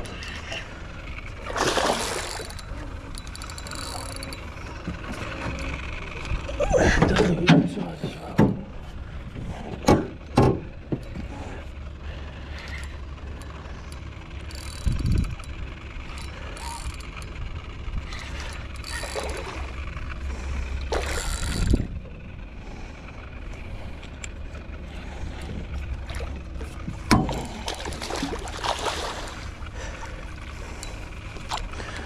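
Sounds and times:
water rushes or handling noise: 0.0 - 5.6, 18.0 - 19.8, 20.8 - 21.9, 25.1 - 32.0
steady low rumble: 0.0 - 32.0
fishing reel winding: 2.0 - 4.6, 12.5 - 19.7, 20.8 - 22.0.

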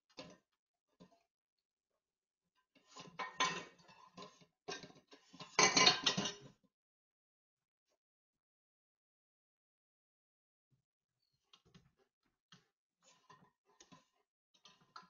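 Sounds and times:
dishes clattering in a steel sink: 3.2 - 6.5.

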